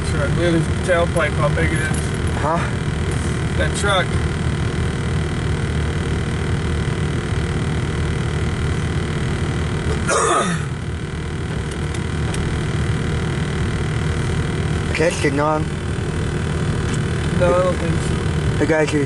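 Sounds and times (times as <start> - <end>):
car engine idling: 0.0 - 19.0
brief vocal grunt: 10.0 - 10.7.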